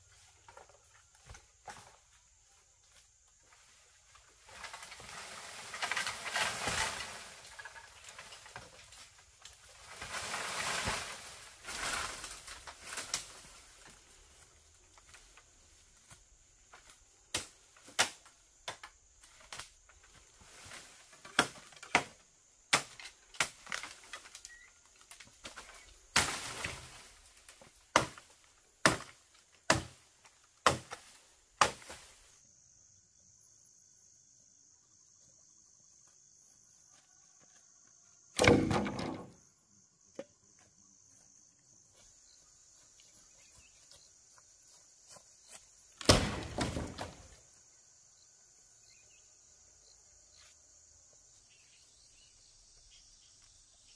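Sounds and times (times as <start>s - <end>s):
machete chopping bamboo: 21.3s - 23.9s, 27.9s - 30.0s, 30.6s - 32.0s, 38.4s - 39.3s, 46.0s - 47.2s.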